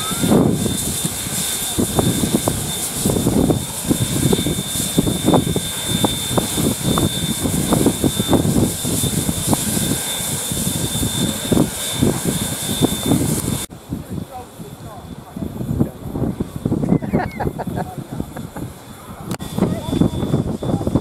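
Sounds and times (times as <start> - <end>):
thin high tone: 0.0 - 1.8
steam locomotive hiss: 0.0 - 13.7.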